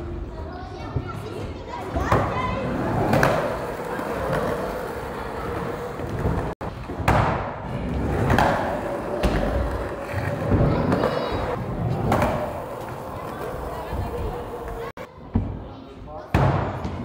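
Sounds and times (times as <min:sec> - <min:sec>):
skateboard wheels rolling on concrete: 0:01.8 - 0:15.1.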